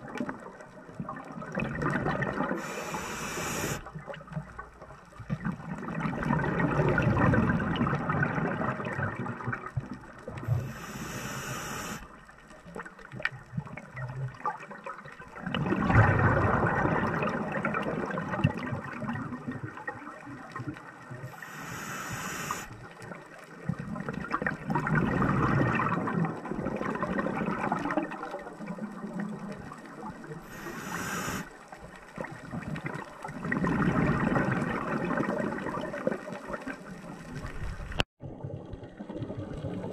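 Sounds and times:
exhaled bubbles rushing underwater: 0.0 - 39.9
regulator hissing inhales: 2.6 - 3.8, 10.5 - 12.1, 21.3 - 22.8, 30.4 - 31.5.

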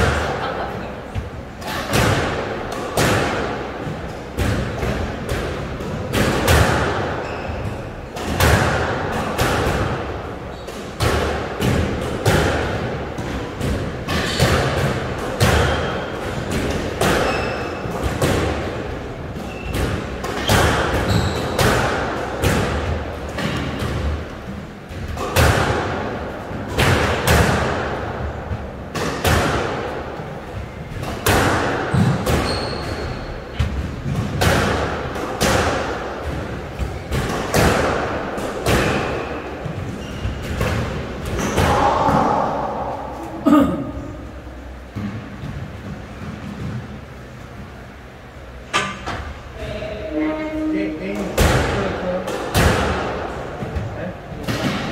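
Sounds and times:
squash ball hitting rackets and walls: 0.0 - 49.7, 51.0 - 54.9
shoes squeaking on court: 7.2 - 8.0, 17.2 - 17.9, 19.4 - 21.6, 31.9 - 33.6, 38.9 - 40.6.

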